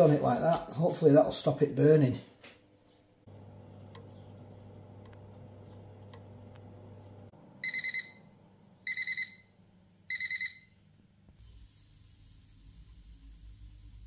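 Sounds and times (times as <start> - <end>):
oven fan hum: 3.3 - 8.6
oven high beeps: 7.6 - 10.8.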